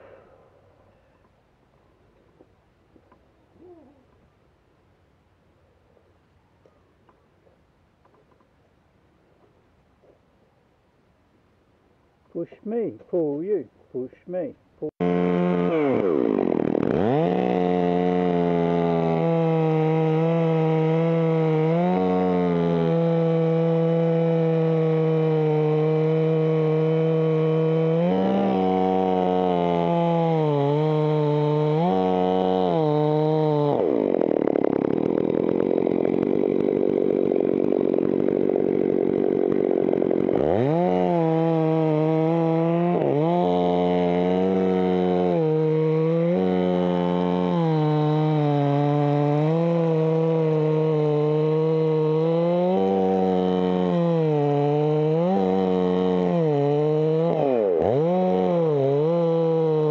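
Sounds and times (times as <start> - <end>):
chainsaw cutting wood: 14.8 - 59.9.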